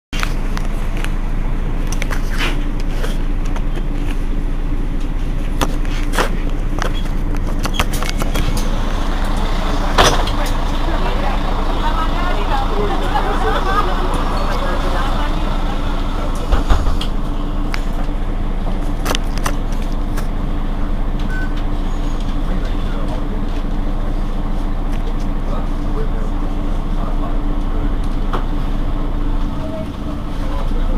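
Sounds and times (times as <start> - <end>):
bus diesel engine idling: 0.2 - 30.9
thump: 16.5 - 17.1.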